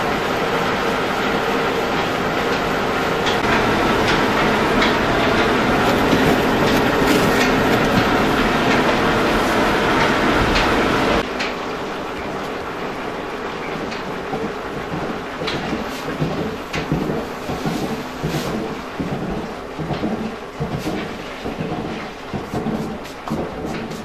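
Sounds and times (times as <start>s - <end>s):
millstones grinding: 4.9s - 8.5s.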